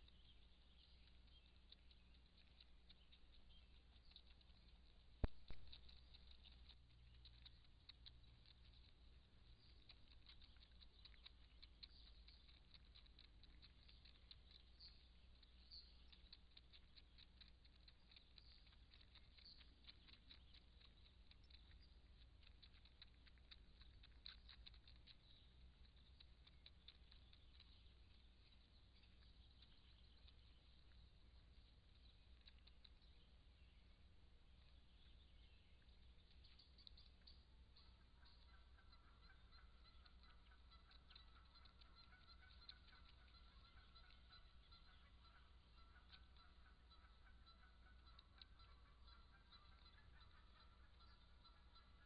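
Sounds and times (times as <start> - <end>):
faint rapid ticking: 0.0 - 52.0
low steady hum: 0.0 - 52.0.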